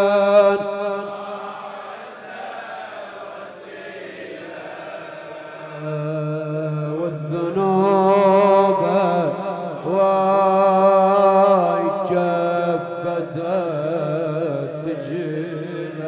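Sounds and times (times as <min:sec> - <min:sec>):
man singing over a microphone: 0:00.0 - 0:01.1, 0:05.7 - 0:16.0
crowd of men chanting: 0:00.0 - 0:06.3.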